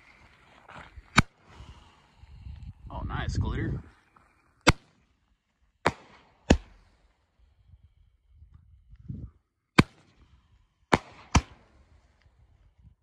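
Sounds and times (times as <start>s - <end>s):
roman candle firework bangs: 4.6s - 4.9s, 5.8s - 6.9s, 10.9s - 11.6s.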